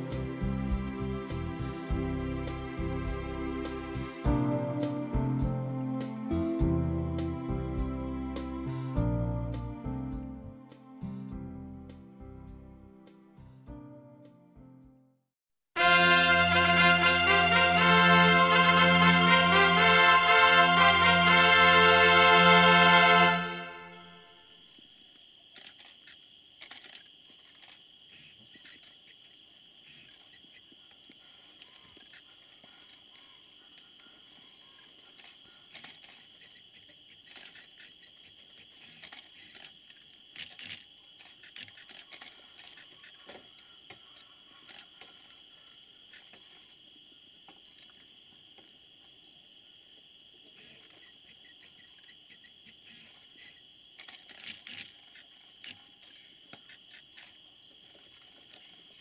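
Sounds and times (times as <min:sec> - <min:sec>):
insect chorus buzzing: 0:23.8 - 0:59.0.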